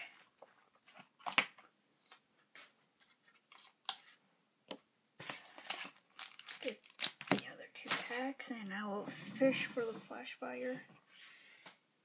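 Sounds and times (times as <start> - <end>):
blister pack clicks and crinkles: 5.5 - 8.2.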